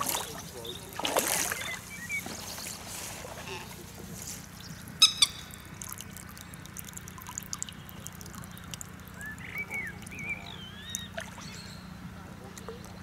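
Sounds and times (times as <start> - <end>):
fish splashing at surface: 0.0 - 2.4.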